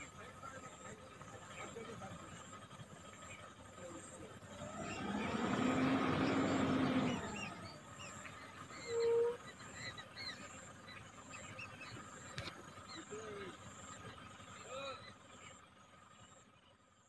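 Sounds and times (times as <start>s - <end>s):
small birds chirping: 0.0s - 17.0s
vehicle passing by: 4.4s - 9.9s.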